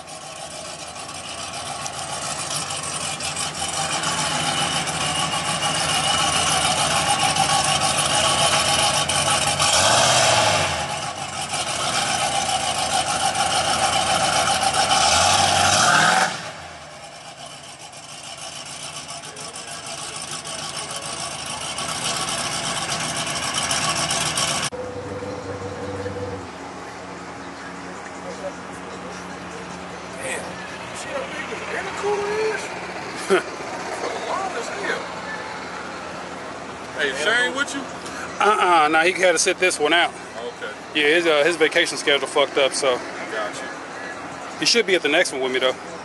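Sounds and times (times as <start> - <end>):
engine revving: 0.0 - 26.6
pickup truck engine: 0.0 - 46.0.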